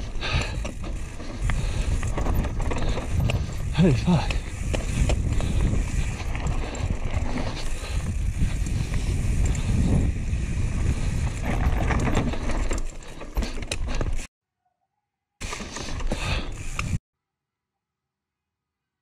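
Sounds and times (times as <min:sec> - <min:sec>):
bike clattering over stones: 0:00.0 - 0:09.8, 0:10.9 - 0:14.3
wind and tyres rumbling: 0:00.0 - 0:14.3, 0:15.4 - 0:17.0.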